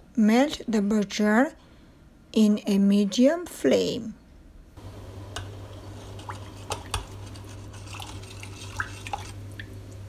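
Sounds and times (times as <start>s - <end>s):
steady low hum: 3.2s - 10.0s.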